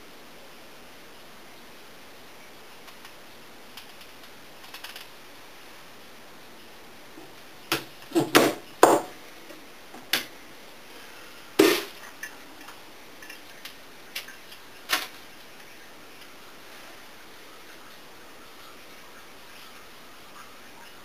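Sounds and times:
knife knocking on cutting board: 8.2 - 9.1.

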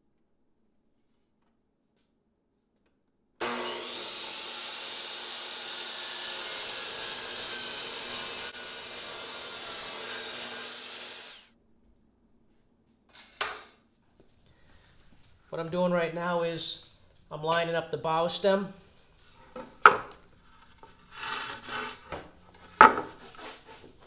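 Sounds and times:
miter saw cutting plywood: 3.4 - 11.5.

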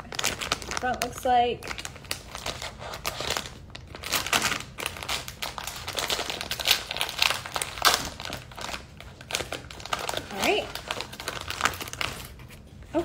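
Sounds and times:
plastic bag crackling: 0.0 - 13.0.

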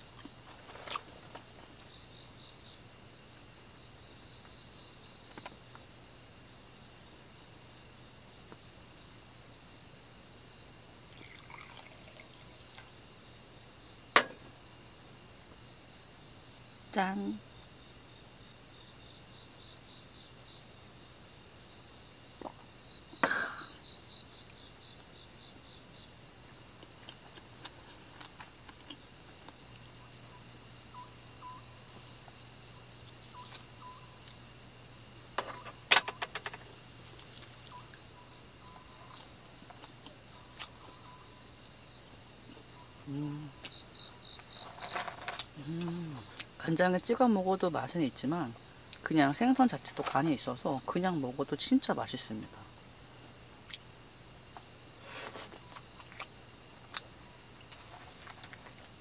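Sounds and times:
insects chirring: 0.0 - 59.0
sharp clicks and knocks: 35.4 - 36.7.

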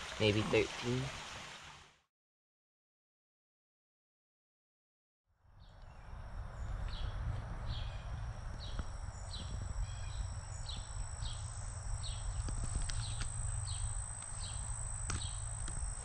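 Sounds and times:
high insect drone: 5.6 - 16.0
low rumble: 5.8 - 16.0.

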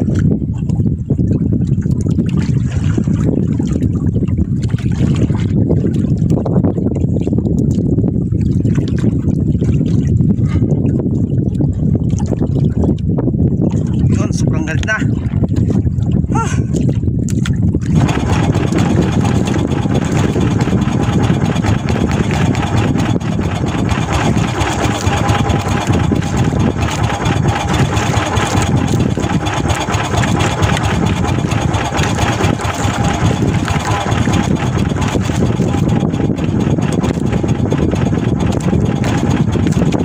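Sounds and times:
boat engine idling: 17.8 - 40.0.

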